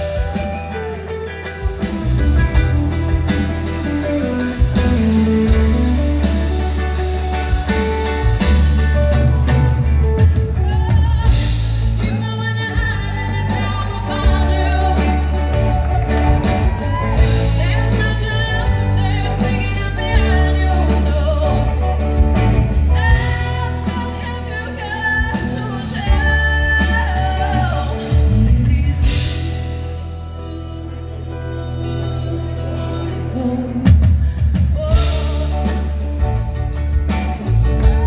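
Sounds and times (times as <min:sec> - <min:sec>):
bass notes: 0:00.0 - 0:38.0
live band music: 0:00.0 - 0:38.0
woman singing: 0:10.5 - 0:38.0.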